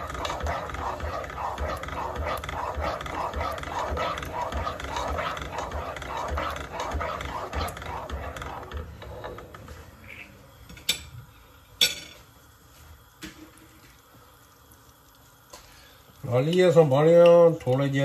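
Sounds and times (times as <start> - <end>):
spatula scraping a saucepan: 0.0 - 10.4.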